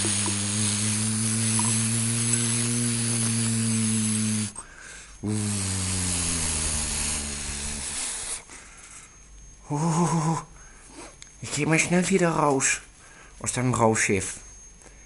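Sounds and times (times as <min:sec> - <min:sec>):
electronic hum with hiss: 0:00.0 - 0:15.0.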